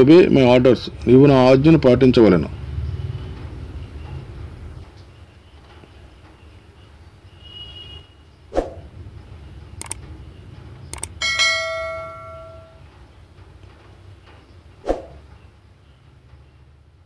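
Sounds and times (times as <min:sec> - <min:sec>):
quick double clicks: 0:09.8 - 0:10.0, 0:10.9 - 0:11.2
low steady hum: 0:11.0 - 0:12.8
bell notification ding: 0:11.2 - 0:12.8.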